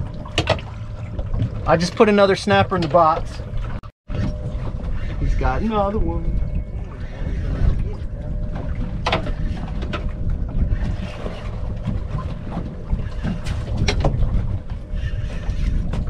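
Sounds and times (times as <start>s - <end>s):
water against boat hull: 0.0s - 16.0s
wind buffeting microphone: 1.0s - 16.0s.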